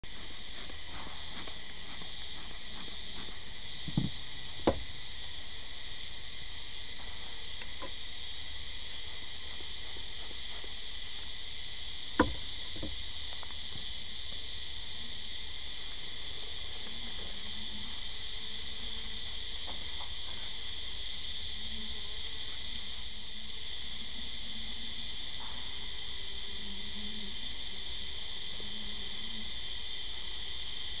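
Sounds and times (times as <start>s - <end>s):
insects chirping: 0.0s - 31.0s
knocks: 3.9s - 4.9s, 12.2s - 13.0s.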